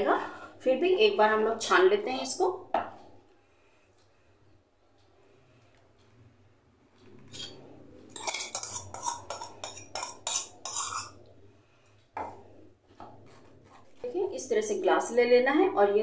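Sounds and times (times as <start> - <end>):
metal spoon scraping steel: 7.3 - 11.2.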